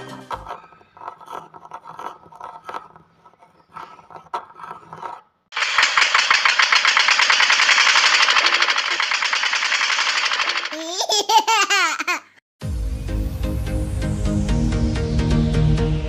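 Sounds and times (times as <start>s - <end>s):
small motor mill rattling buzz: 5.5s - 10.8s.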